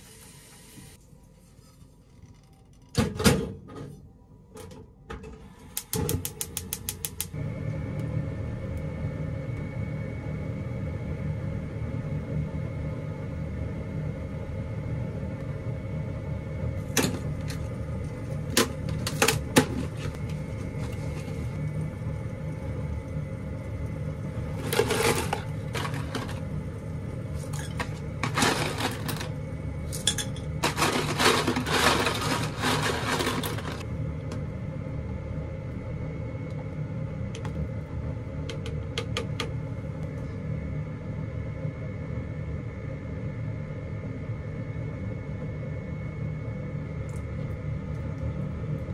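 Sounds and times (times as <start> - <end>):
steady low hum: 0.0 - 48.9
dry pasta rattling in box: 24.6 - 26.4, 27.7 - 29.4, 30.6 - 33.8.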